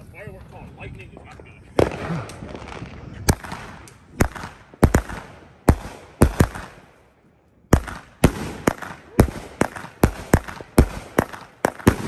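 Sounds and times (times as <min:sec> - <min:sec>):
firework cake bangs: 0:01.8 - 0:06.8, 0:07.7 - 0:12.0.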